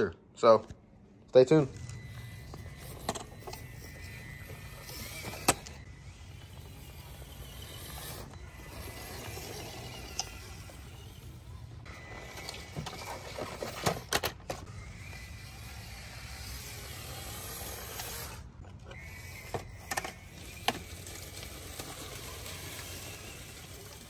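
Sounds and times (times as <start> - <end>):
small electric motor whine: 1.7 - 24.0
rustling leaves: 20.4 - 24.0.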